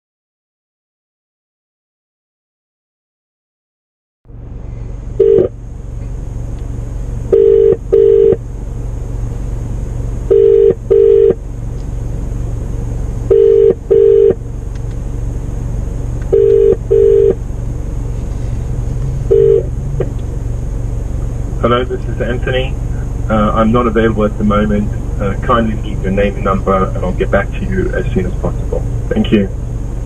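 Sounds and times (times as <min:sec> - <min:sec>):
steady low hum: 0:04.3 - 0:30.0
phone ringback tone: 0:05.2 - 0:05.5, 0:07.3 - 0:08.4, 0:10.3 - 0:11.4, 0:13.3 - 0:14.4, 0:16.3 - 0:17.4, 0:19.3 - 0:19.7.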